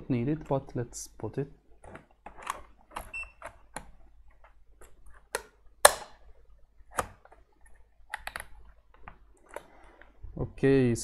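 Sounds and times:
plastic clicks and knocks: 0:06.9 - 0:10.2.

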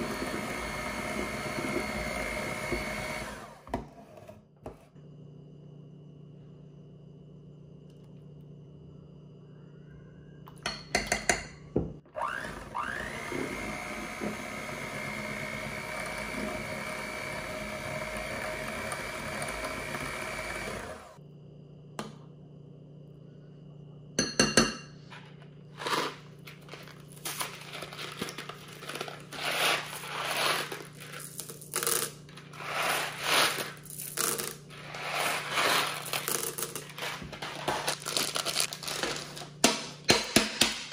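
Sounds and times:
hand mixer whirring: 0:00.0 - 0:03.7, 0:12.1 - 0:21.2
packets crinkling and rustling: 0:25.7 - 0:31.9, 0:35.8 - 0:39.6.

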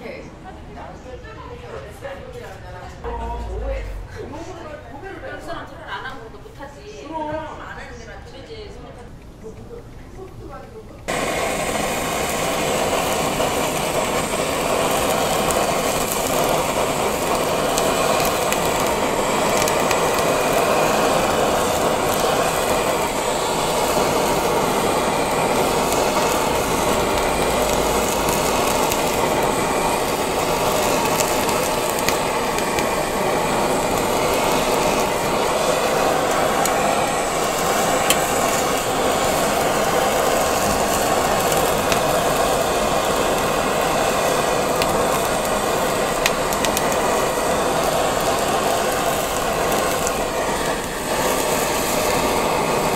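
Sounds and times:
blowtorch flame hissing: 0:11.0 - 0:52.9.

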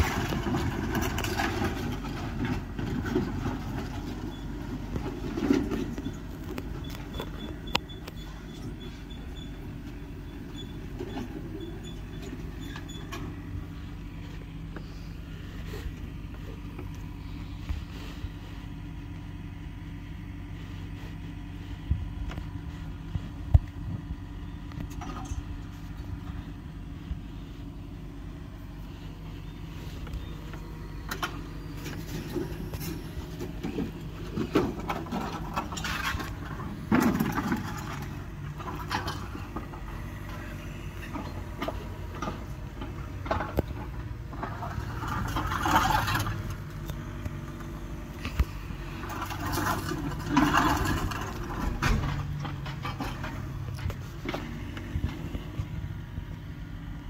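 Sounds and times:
debris crashing and scraping: 0:00.0 - 0:06.0, 0:31.9 - 0:40.5, 0:43.3 - 0:46.7, 0:49.0 - 0:54.8
excavator engine running: 0:00.0 - 0:57.0.

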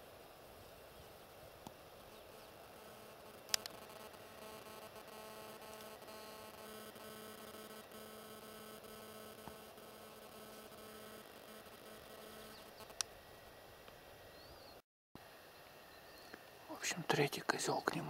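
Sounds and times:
faint hum of held tones: 0:00.3 - 0:13.6
sharp click: 0:03.5 - 0:03.8.

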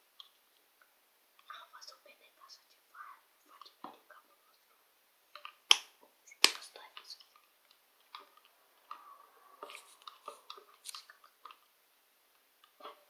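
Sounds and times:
slime squishing: 0:05.3 - 0:11.8.

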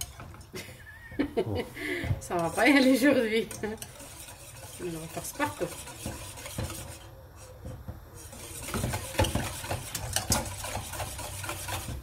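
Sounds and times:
utensil scraping a saucepan: 0:00.0 - 0:00.5, 0:02.2 - 0:12.0.

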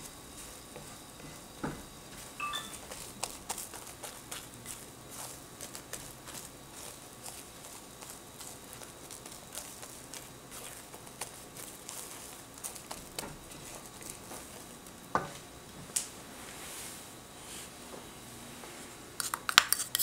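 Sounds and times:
spatula tapping and scraping pan: 0:00.7 - 0:04.8
spatula knocking on pan: 0:00.8 - 0:02.8.

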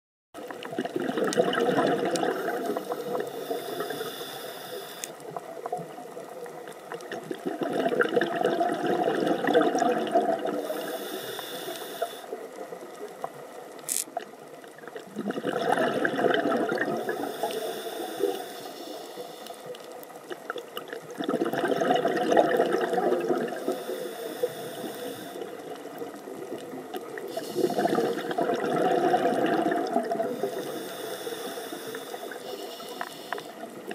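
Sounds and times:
exhaled bubbles underwater: 0:00.4 - 0:33.9
regulator hiss: 0:02.4 - 0:05.2, 0:10.6 - 0:12.4, 0:17.0 - 0:19.8, 0:23.6 - 0:25.5, 0:27.3 - 0:28.2, 0:30.3 - 0:33.6.

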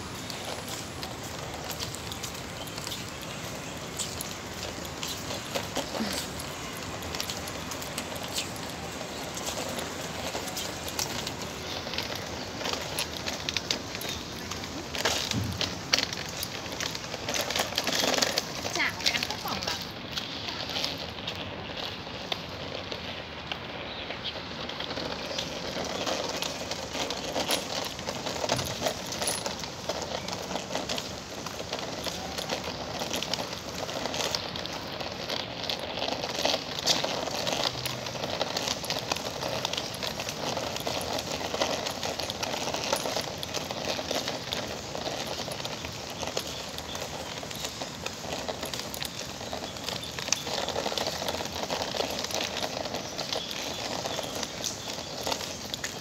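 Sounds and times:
steady rain pattering: 0:00.0 - 0:56.0.

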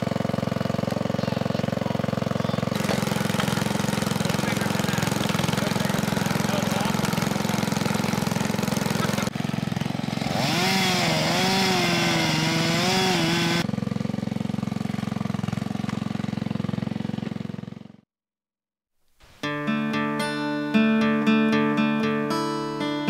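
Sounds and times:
log splitter engine running: 0:00.0 - 0:18.0.

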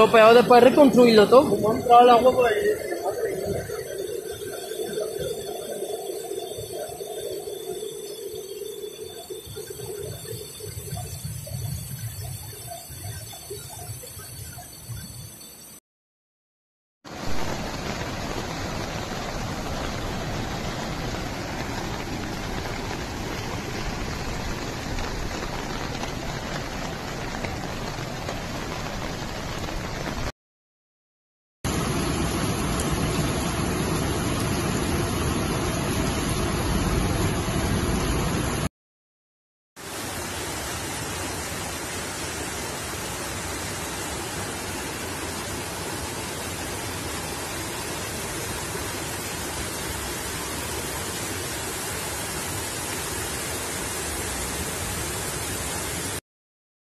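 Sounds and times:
floodwater rushing: 0:17.1 - 0:30.3.

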